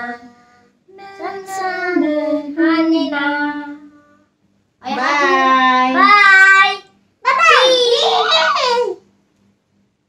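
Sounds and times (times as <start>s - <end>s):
young children singing: 0.9s - 4.0s, 4.8s - 6.9s.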